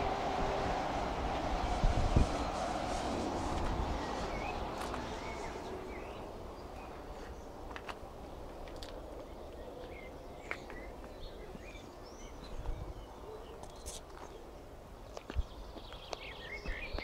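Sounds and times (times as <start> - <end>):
steady low rumble: 0.0 - 13.2.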